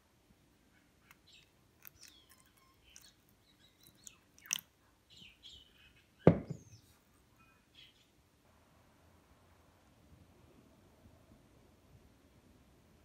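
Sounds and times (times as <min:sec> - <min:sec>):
birds chirping: 0:00.7 - 0:08.2.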